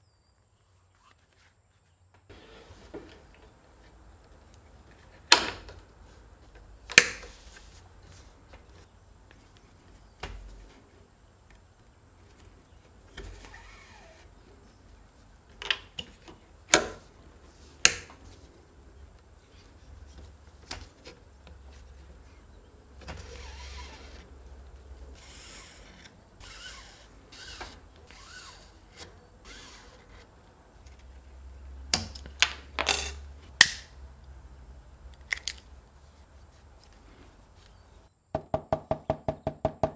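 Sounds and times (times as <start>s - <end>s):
thread rasping through holes: 23.1s - 24.3s, 25.1s - 30.3s.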